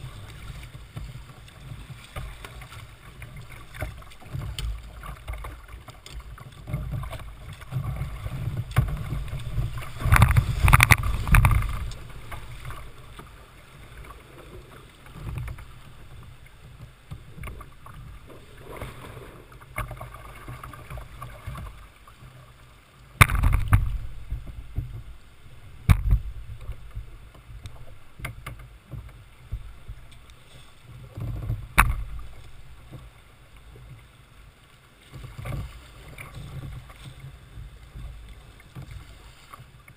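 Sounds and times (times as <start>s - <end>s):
wind rumble on microphone: 0.0s - 13.2s, 23.2s - 30.2s
water rushing along kayak hull: 0.0s - 39.9s.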